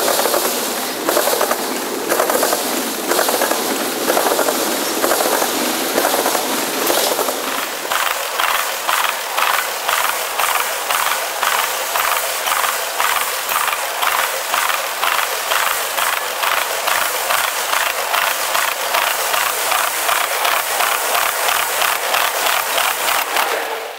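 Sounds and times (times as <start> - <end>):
train wheels clattering over crossing: 0.0 - 23.9.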